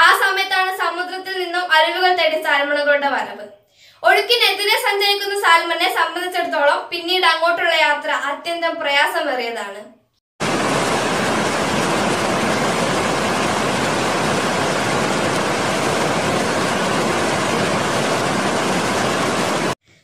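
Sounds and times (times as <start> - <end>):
roar of rushing water: 10.4 - 19.8.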